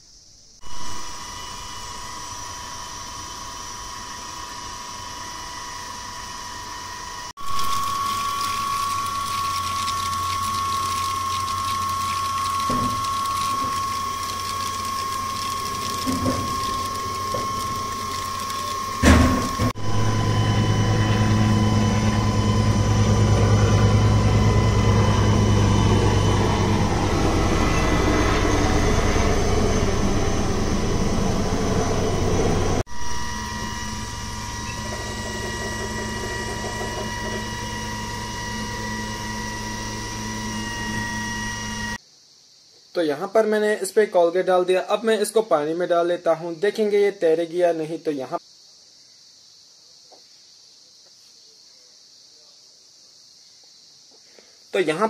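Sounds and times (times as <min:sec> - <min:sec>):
machine whine and hum: 0:00.4 - 0:42.0.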